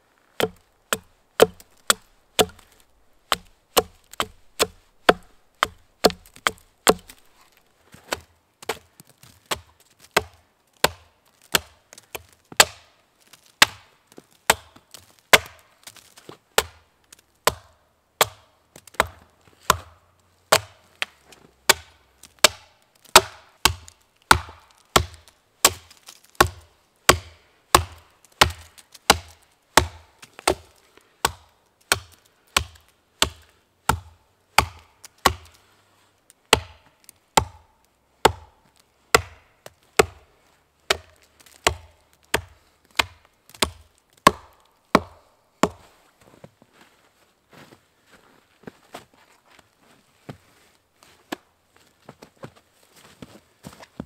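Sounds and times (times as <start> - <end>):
hatchet chopping wood: 0.4 - 13.0, 13.6 - 13.9, 14.5 - 16.0, 16.6 - 35.6, 36.5 - 45.9.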